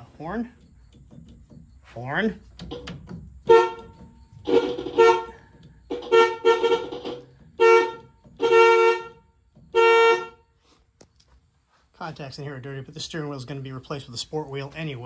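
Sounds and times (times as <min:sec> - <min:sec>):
car horn short blasts: 0:03.5 - 0:10.5.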